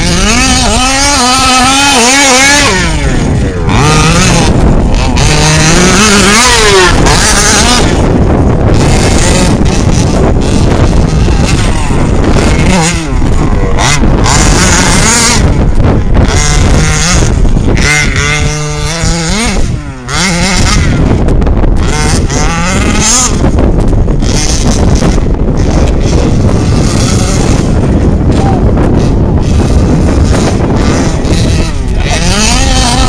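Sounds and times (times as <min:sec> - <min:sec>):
two-stroke engine revving: 0:00.0 - 0:33.0
wind noise on microphone: 0:00.0 - 0:33.0.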